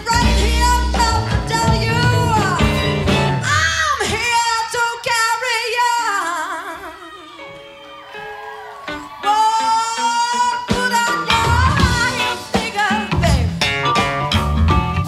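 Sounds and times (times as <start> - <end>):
electric guitar: 0.0 - 4.2, 6.5 - 15.0
bass guitar: 0.0 - 4.4, 8.9 - 15.0
woman singing lead: 0.0 - 7.7, 8.8 - 13.7
drums: 0.0 - 15.0.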